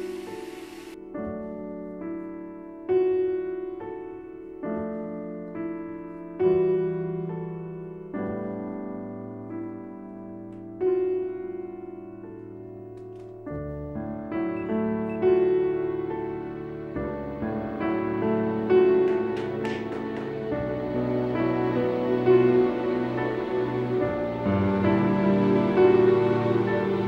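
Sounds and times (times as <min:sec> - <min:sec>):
slow piano music: 0:00.0 - 0:27.0.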